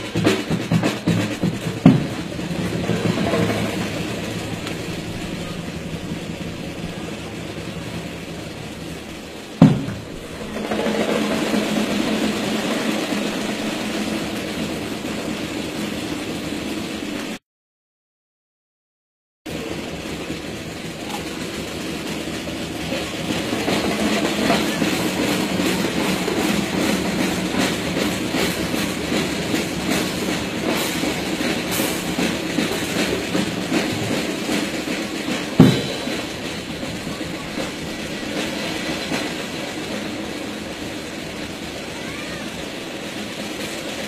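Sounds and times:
marching boots: 0.0 - 8.3, 9.2 - 11.2
loud sharp thump: 9.6 - 10.2.

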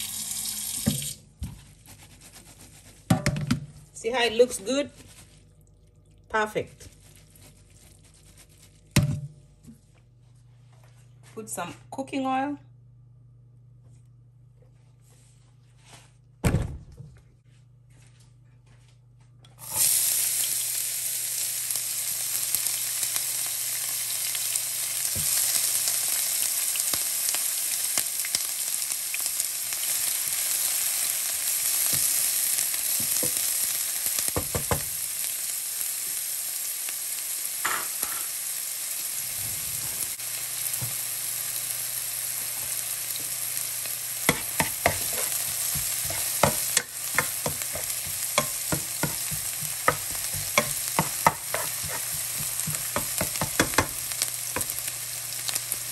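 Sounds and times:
onion sizzling in hot oil: 19.6 - 55.9
spatula scraping pan: 44.3 - 54.0.

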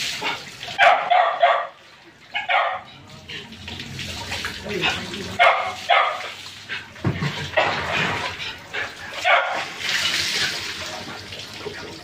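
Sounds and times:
dog barking: 0.8 - 3.0, 4.9 - 6.4, 9.1 - 9.8
water splashing over dog: 2.4 - 12.0.

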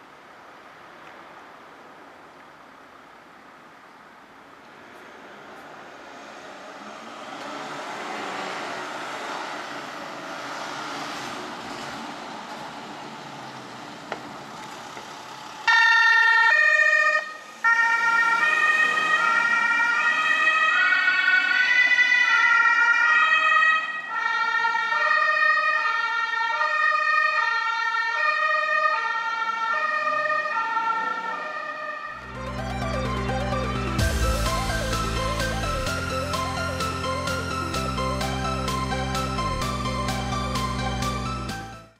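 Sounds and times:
ambulance horn melody: 15.7 - 20.9, 30.9 - 41.9.

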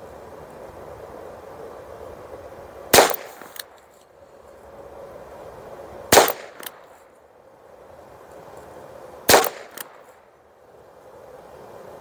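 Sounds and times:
revolver gunshots: 2.9 - 3.6, 6.1 - 6.8, 9.3 - 10.0.

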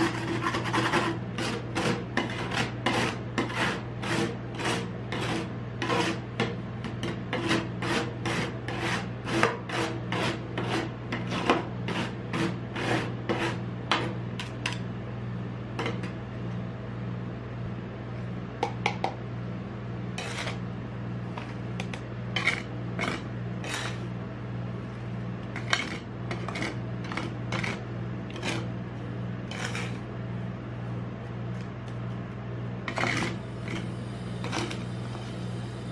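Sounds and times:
spatulas chopping ice on steel: 0.0 - 14.8, 21.8 - 24.0, 25.6 - 28.7, 29.5 - 30.0, 32.9 - 34.8
steady low hum: 0.0 - 35.9.

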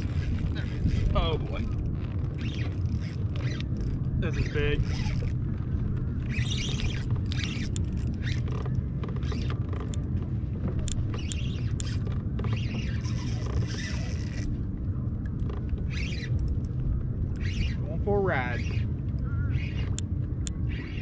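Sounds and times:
steady low rumble: 0.0 - 21.0
fishing reel cranking clicks: 12.7 - 14.5.

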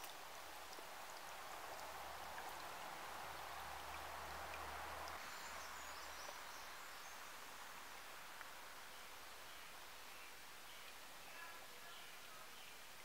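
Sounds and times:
stream trickling over rocks: 0.0 - 13.0.

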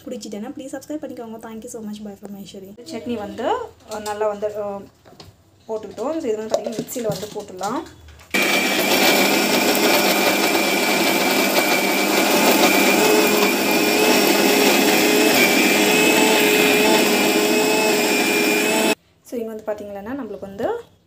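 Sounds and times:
mixer grinder whirring: 8.4 - 19.0.

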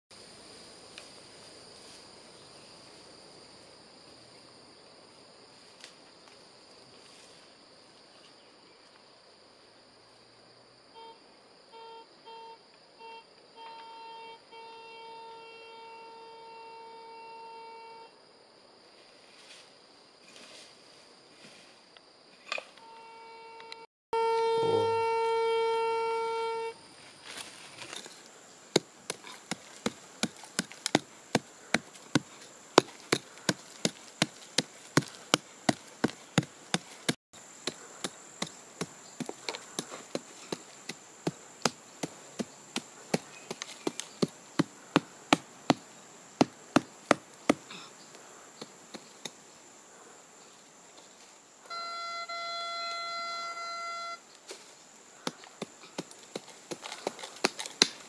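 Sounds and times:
insects buzzing: 0.1 - 58.0
metal detector steady tone: 22.8 - 26.8, 51.7 - 54.2
pick chopping into soil: 27.8 - 47.8, 55.2 - 58.0.

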